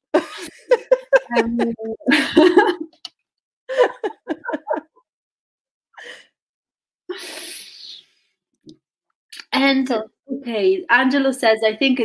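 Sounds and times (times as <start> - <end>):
women laughing: 0.1 - 3.0, 3.7 - 5.0.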